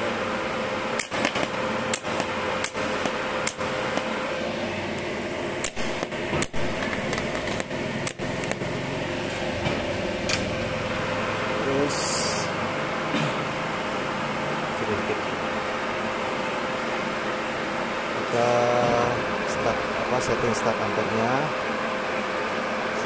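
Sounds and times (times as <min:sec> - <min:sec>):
welder hum and whine: 0:00.0 - 0:23.0
welding arc crackles: 0:01.0 - 0:04.2, 0:04.8 - 0:09.4.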